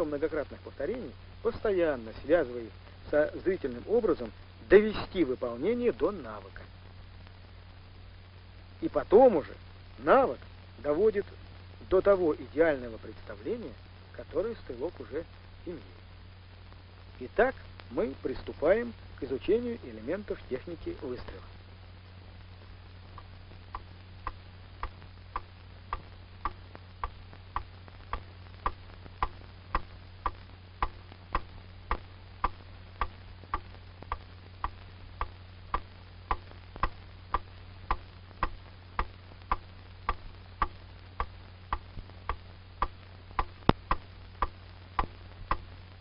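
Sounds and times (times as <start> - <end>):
low steady hum: 0.0 - 46.0
clock ticking: 23.2 - 45.7.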